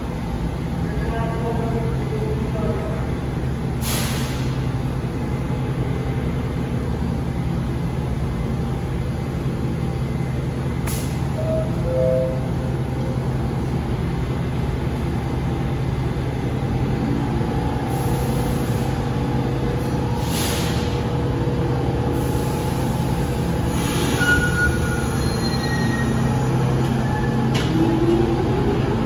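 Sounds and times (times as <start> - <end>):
train electrical hum: 0.0 - 29.0
train air hiss: 3.8 - 4.7, 19.8 - 21.0, 22.1 - 24.3
faint high squeals: 24.1 - 27.4.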